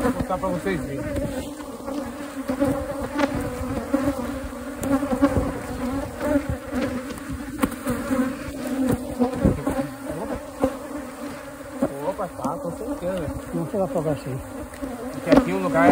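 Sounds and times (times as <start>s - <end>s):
honeybees buzzing: 0.0s - 15.9s.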